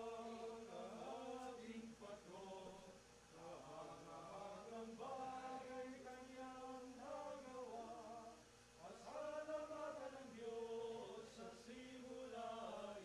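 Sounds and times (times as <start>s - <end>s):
men singing a slow hymn: 0.0s - 13.0s.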